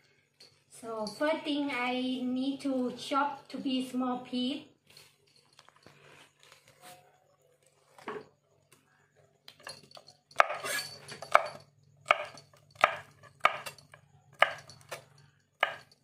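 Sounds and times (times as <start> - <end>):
knife chopping on cutting board: 14.4 - 15.0, 15.6 - 15.9.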